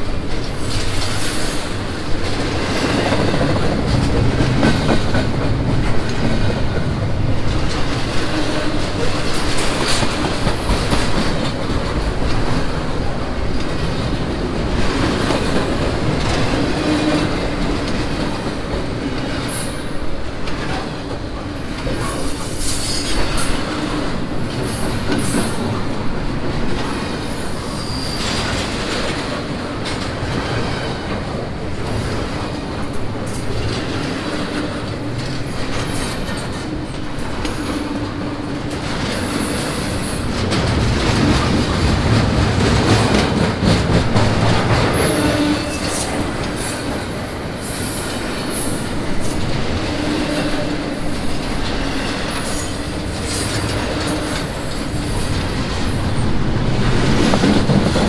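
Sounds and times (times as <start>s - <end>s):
train cars clattering over rail joints: 0.0s - 58.0s
high wheel squeal: 27.6s - 28.4s.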